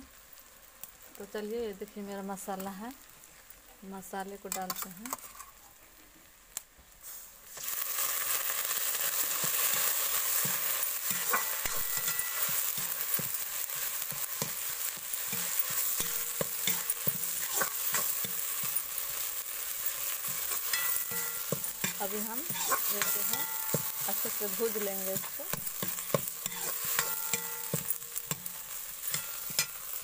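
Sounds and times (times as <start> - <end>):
masala sizzling in hot oil: 0.0 - 30.0
spoon scraping pan: 9.0 - 30.0.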